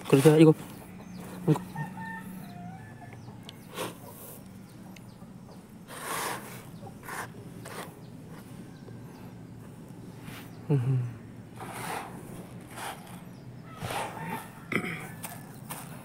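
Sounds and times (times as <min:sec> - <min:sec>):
faint animal calls: 0:12.7 - 0:15.6.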